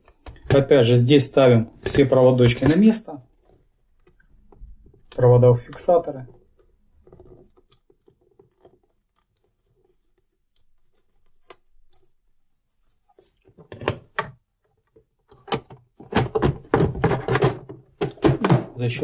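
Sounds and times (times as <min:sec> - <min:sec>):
plastic panel knocks and clicks: 0:15.4 - 0:18.8.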